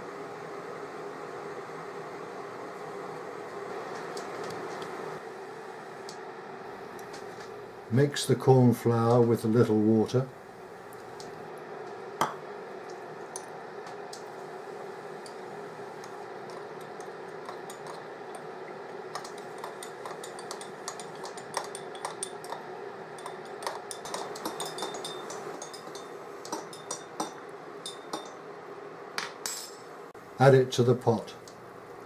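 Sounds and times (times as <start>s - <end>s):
steady hum: 0.0s - 32.0s
teaspoon stirring paste in bowl: 19.1s - 28.3s
spoon clinking against ceramic bowl: 19.2s - 22.6s, 23.2s - 28.4s.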